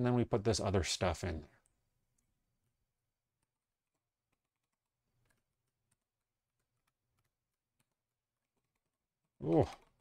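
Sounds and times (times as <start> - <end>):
computer keyboard typing: 3.4 - 10.0.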